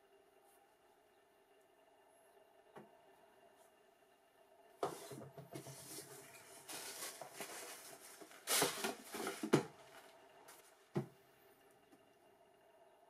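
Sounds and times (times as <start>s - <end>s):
paper and cardboard rustling: 4.9s - 10.8s.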